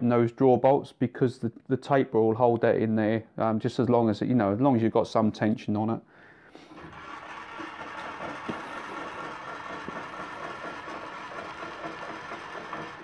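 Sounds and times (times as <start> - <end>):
milling machine motor whirring: 6.7 - 13.0.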